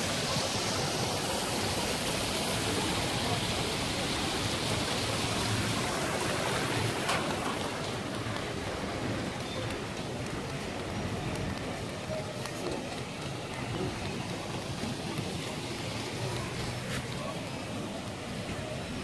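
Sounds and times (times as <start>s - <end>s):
fountain jets splashing on paving: 0.0s - 19.0s.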